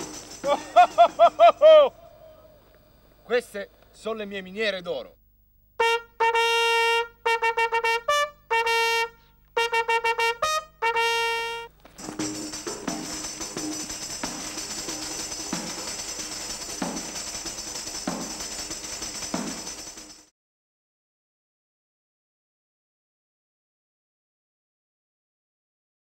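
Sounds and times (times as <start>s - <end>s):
high-pitched shimmering rattle: 0.0s - 1.9s, 12.0s - 20.3s
trumpet call: 5.8s - 11.8s.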